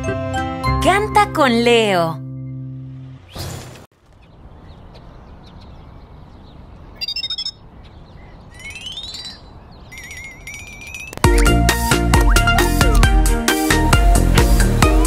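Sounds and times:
birds chirping: 3.1s - 13.1s
bird whistle and warbling trill: 7.0s - 11.2s.

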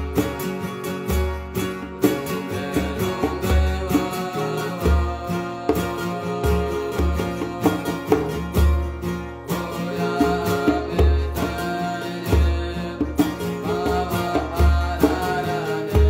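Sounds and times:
plucked string instrument: 0.0s - 16.0s
person chanting: 2.3s - 8.5s, 9.5s - 16.0s.

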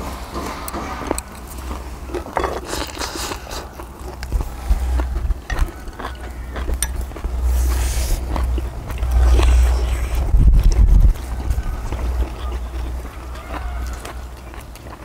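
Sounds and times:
chewing and mouth clicks: 0.1s - 15.0s
wind rumble on microphone: 4.2s - 14.2s.

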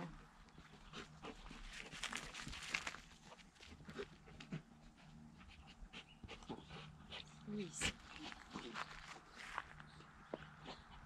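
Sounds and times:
dogs panting: 0.1s - 11.0s
scuffles and rustles on grass: 1.5s - 3.8s, 7.9s - 9.9s.

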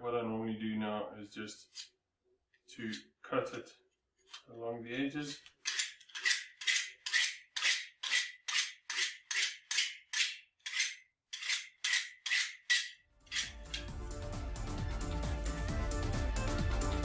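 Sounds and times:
knife blade scraping metal plate: 5.2s - 13.9s
music: 13.2s - 17.0s.

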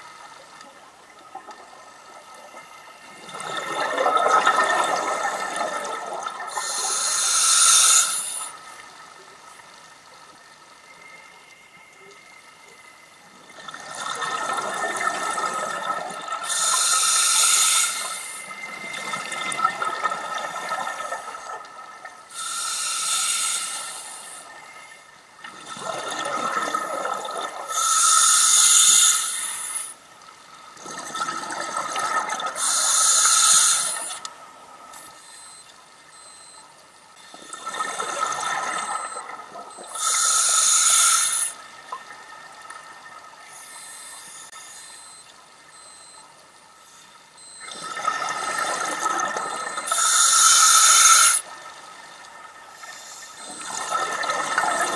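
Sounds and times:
regulator inhale hiss: 6.5s - 8.6s, 16.4s - 18.7s, 22.3s - 25.0s, 27.7s - 30.0s, 32.6s - 34.2s, 39.9s - 41.6s, 49.9s - 51.4s.

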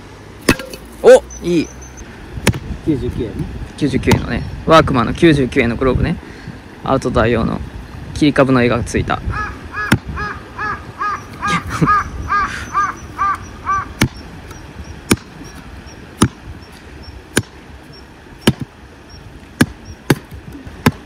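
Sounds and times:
crow cawing: 9.3s - 14.0s.

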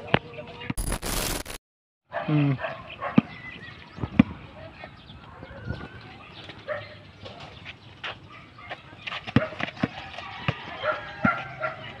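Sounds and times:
basketball bouncing on concrete: 9.0s - 11.5s.

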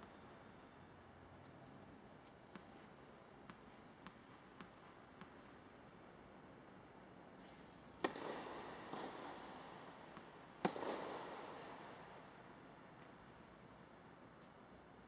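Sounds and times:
racket striking tennis ball: 8.0s - 12.4s.

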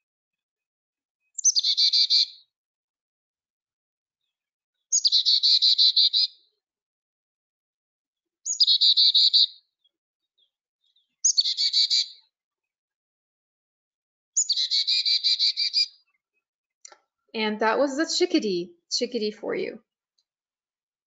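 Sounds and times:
chickadee calling: 1.4s - 2.4s, 4.9s - 6.3s, 8.5s - 9.5s, 11.2s - 12.2s, 14.4s - 15.9s.

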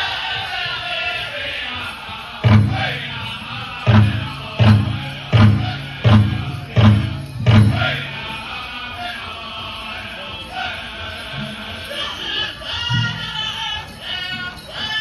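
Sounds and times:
heavy drum beats: 2.4s - 8.5s.

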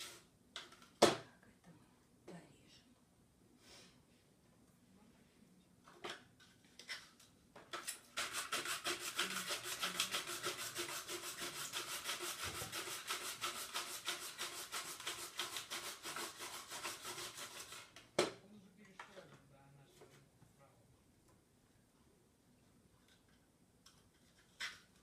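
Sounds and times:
onion rasping on grater: 7.8s - 18.0s.

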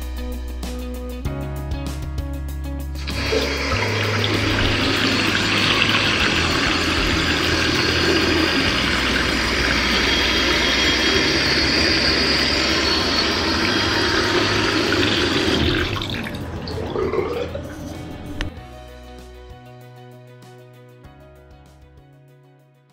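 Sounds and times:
tap water splashing into basin: 3.1s - 11.0s.

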